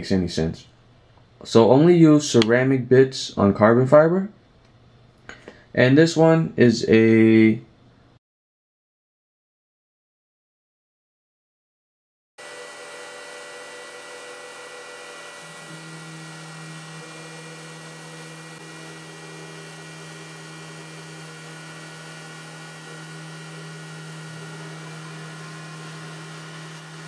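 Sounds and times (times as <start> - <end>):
router spindle grinding: 12.4 - 27.0.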